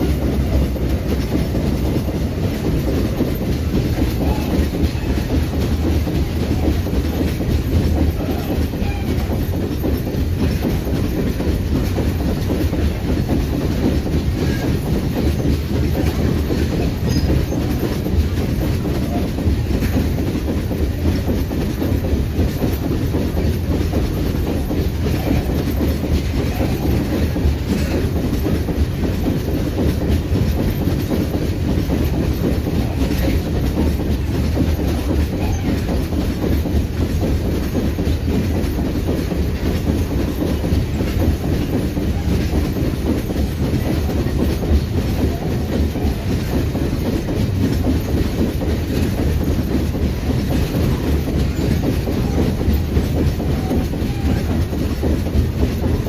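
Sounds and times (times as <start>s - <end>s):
freight train rolling past: 0.0s - 56.0s
wheels clacking over rails: 0.0s - 56.0s.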